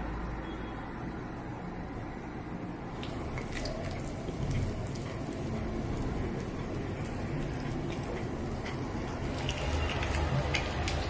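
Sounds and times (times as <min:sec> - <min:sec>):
cat chewing: 0:02.9 - 0:11.0.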